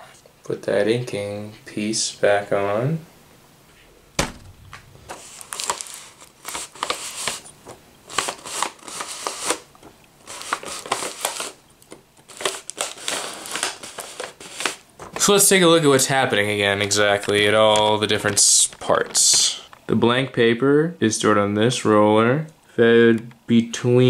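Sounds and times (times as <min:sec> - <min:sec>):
sharp knock: 0:04.1 - 0:05.2
paper crackling through rollers: 0:05.0 - 0:07.5, 0:08.1 - 0:11.6, 0:12.2 - 0:19.7.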